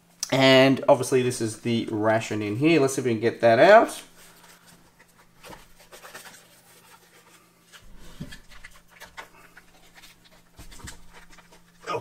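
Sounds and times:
cardboard and foil rustling: 4.0s - 12.0s.

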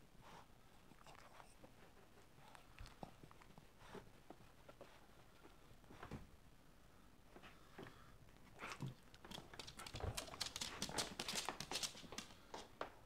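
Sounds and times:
dog making clicks and taps: 8.6s - 12.7s.

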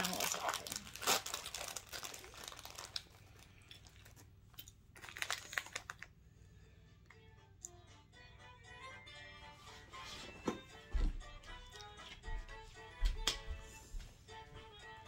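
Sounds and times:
snack bag crinkling: 0.0s - 6.2s
music: 6.3s - 15.0s.

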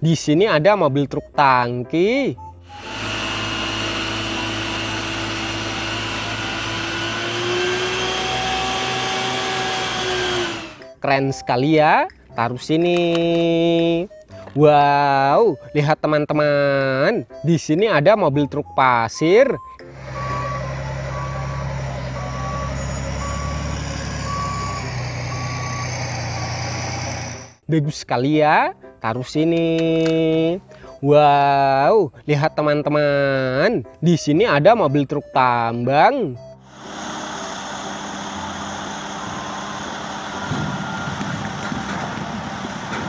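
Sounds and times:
diesel engine running: 2.7s - 10.9s, 19.8s - 27.6s, 36.4s - 43.0s
pump machine whine: 2.7s - 11.0s, 19.8s - 27.6s, 36.4s - 43.0s
reversing alarm beeps: 18.4s - 27.1s.

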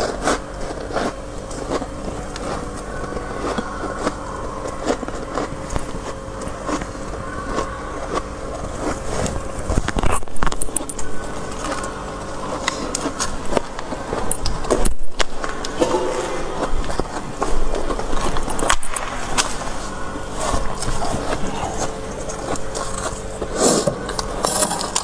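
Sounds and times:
frost being chewed: 0.0s - 25.0s
steady hum: 0.0s - 25.0s.

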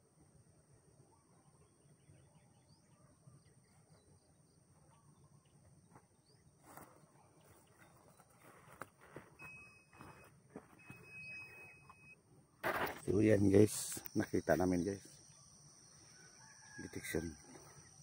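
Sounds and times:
soft high chirps: 9.4s - 12.2s.

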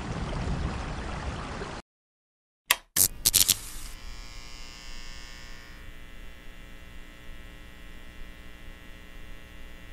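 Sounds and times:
neon sign buzzing: 2.7s - 9.9s.

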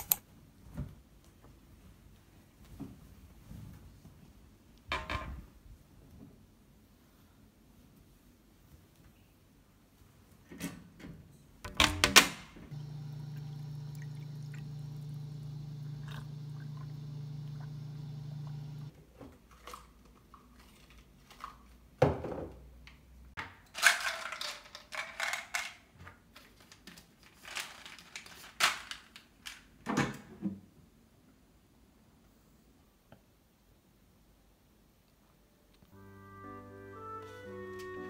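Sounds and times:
drink pouring: 12.7s - 18.9s
steady electric hum: 12.7s - 18.9s.

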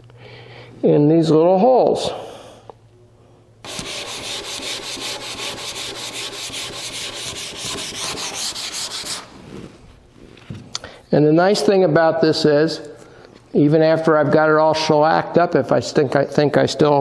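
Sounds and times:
sandpaper rubbing on wood: 3.7s - 9.6s.

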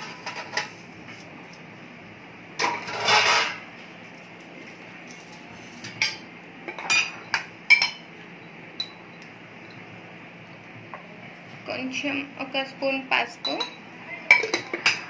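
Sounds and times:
spices scraping on steel plate: 2.6s - 3.6s
clinks against steel bowl: 8.8s - 9.0s, 13.4s - 15.0s.

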